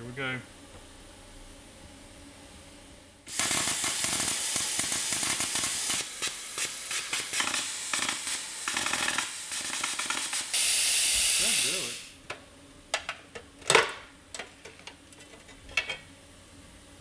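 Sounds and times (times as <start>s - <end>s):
plasma cutter hissing through metal: 3.3s - 12.2s.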